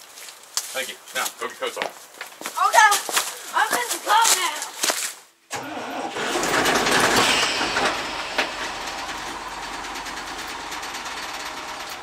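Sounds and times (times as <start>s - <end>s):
truck engine running: 5.6s - 12.0s.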